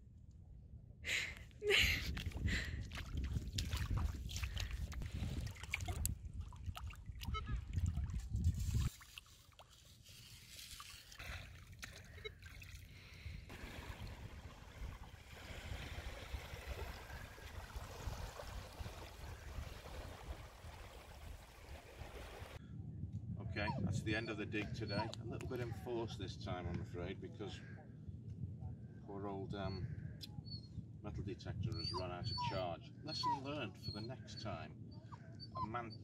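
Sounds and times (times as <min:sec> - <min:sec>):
wind buffeting microphone: 0:01.8 - 0:08.9, 0:13.4 - 0:25.8
seawater trickling: 0:02.1 - 0:22.6
small waves lapping on sand: 0:13.5 - 0:22.6.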